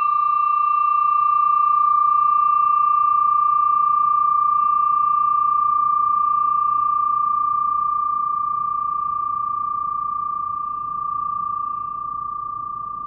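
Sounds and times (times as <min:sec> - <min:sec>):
brass bell ringing: 0:00.0 - 0:00.4.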